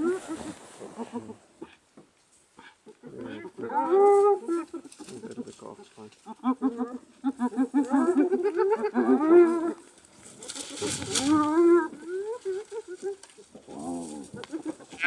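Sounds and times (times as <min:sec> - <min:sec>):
hyenas giggling: 0:02.6 - 0:09.8.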